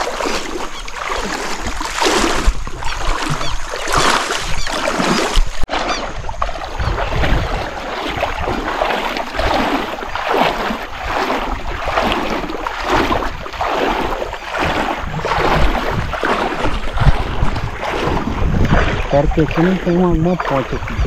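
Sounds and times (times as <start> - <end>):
water sloshing around wading legs: 0.0 - 21.0.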